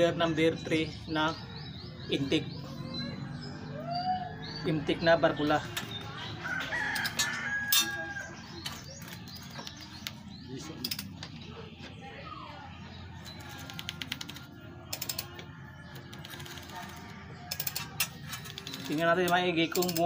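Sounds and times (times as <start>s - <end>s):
ratchet wrench clicking: 13.8s - 15.4s, 16.2s - 20.0s.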